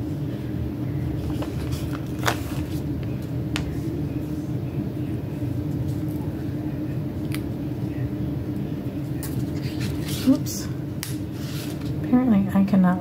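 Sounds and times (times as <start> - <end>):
paper crinkling: 1.2 - 2.9.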